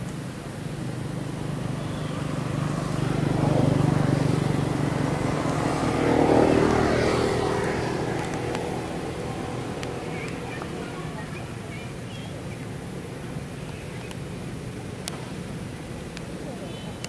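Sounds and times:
vehicle engine droning past: 0.0s - 11.6s.

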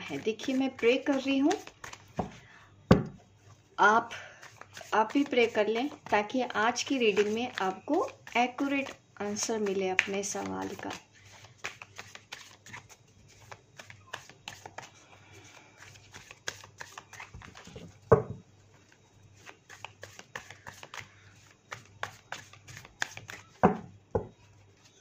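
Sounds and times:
cards being shuffled: 0.0s - 2.4s, 4.4s - 18.1s, 18.8s - 23.8s
card thumps: 1.6s - 3.2s.

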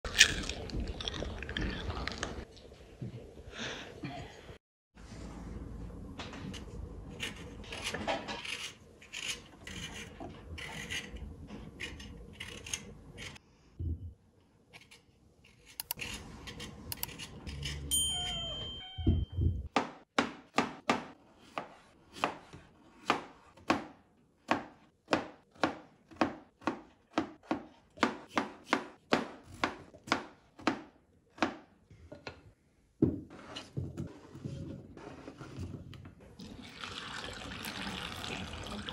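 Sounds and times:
vegetable peeler scraping potato: 7.2s - 13.4s, 14.8s - 17.9s.

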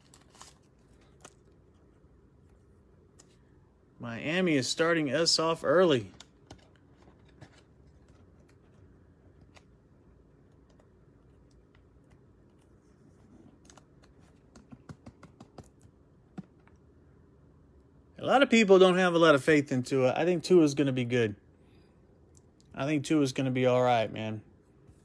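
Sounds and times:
trading cards rustling: 0.0s - 3.4s.

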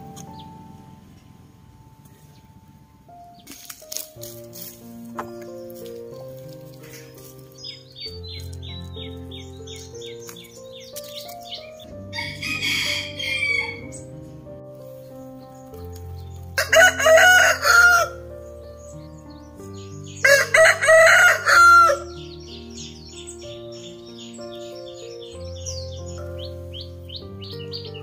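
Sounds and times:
soft background music: 0.0s - 28.0s
rooster crowing: 12.1s - 14.0s, 16.6s - 18.2s, 20.2s - 22.2s.

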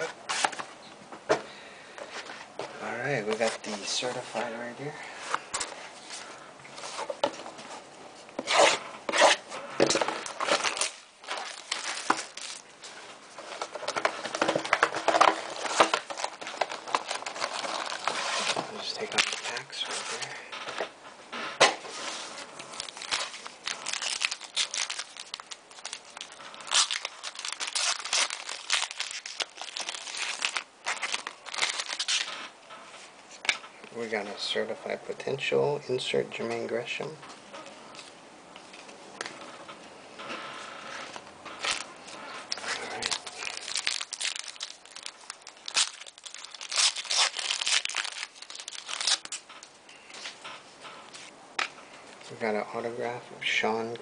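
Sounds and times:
foil wrapper crinkling and tearing: 8.6s - 20.4s, 22.5s - 32.5s, 40.9s - 50.6s.

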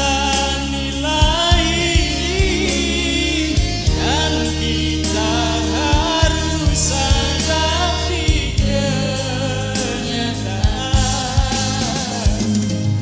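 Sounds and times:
keyboard band backing: 0.0s - 13.0s
man singing pop ballad: 0.0s - 13.0s.

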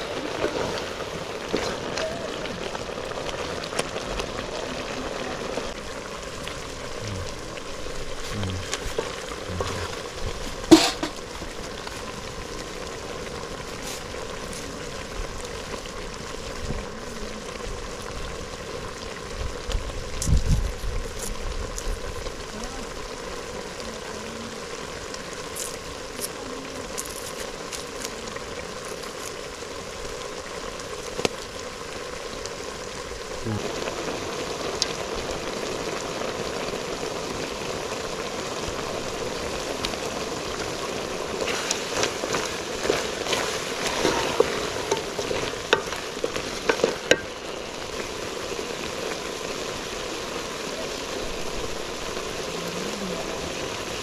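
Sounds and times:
stew sizzling in pot: 0.0s - 54.0s
spoon knocking metal pot: 10.7s - 11.2s.

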